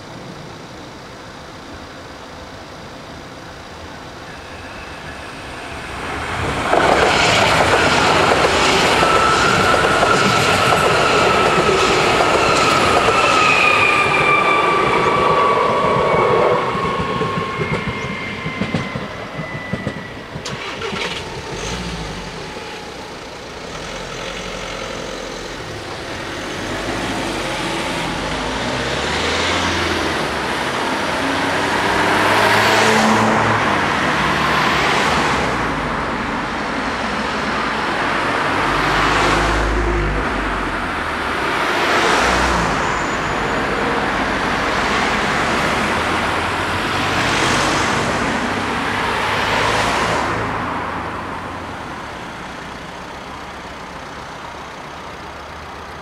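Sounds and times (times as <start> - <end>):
traction motors whining: 0.0 - 32.1
car engines pulling away: 5.6 - 56.0
car passing close: 5.8 - 52.1
train wheels clattering on rails: 5.9 - 21.9.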